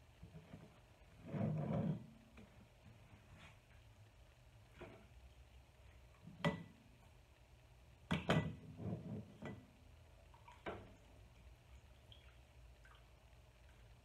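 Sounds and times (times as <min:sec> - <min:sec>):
knocks and clinks on glass jar: 0:08.1 - 0:08.7.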